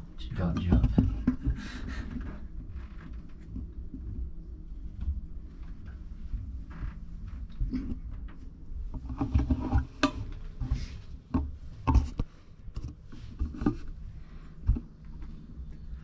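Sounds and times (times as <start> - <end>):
low rumble and rustle: 0.0 - 16.0
knocks and soft thumps: 0.5 - 1.6, 14.6 - 16.0.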